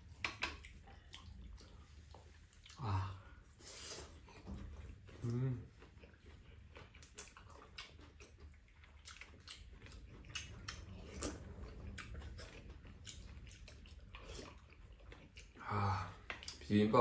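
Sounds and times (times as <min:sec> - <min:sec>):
chewing and slurping: 0:00.0 - 0:16.8.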